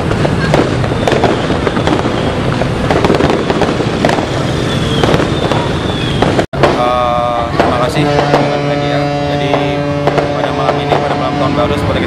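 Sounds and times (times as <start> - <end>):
falling firework whistles: 0.0 - 6.5
crowded street with motorcycles: 0.0 - 12.0
firecrackers cracking: 0.0 - 12.0.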